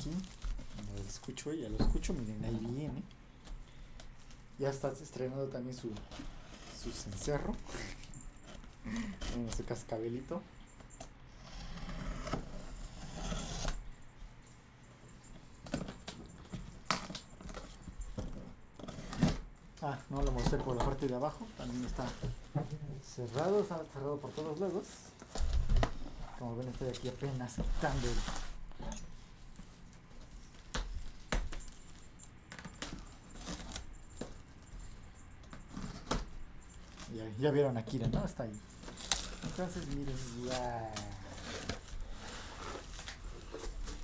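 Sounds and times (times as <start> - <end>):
packing tape tearing: 32.5 - 34.4, 38.8 - 42.0
plastic wrap crackling: 38.8 - 44.0.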